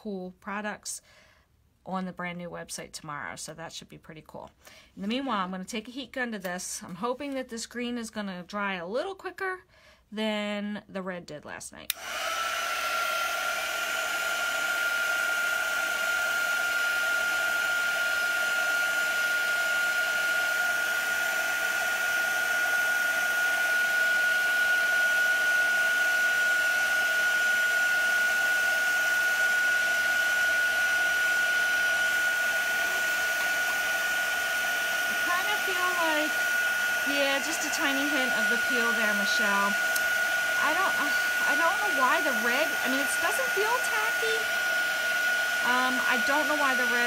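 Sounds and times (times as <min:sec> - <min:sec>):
heat gun whining and blowing air: 0:11.9 - 0:47.0.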